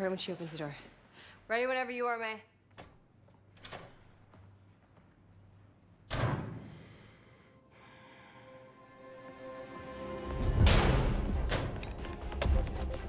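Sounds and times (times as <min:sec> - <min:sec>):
soft sustained music tones: 0:07.1 - 0:13.0.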